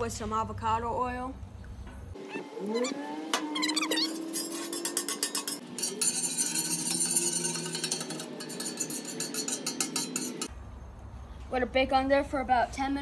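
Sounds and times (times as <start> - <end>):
oil crackling on a griddle: 4.4 - 10.2.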